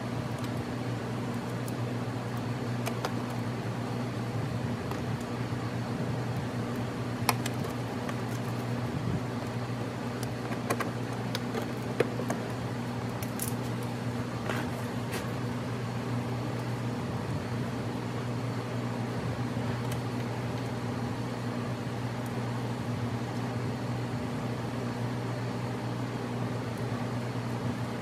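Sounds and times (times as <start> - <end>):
steady mechanical hum: 0.0 - 28.0
scraping rustle: 13.3 - 15.4.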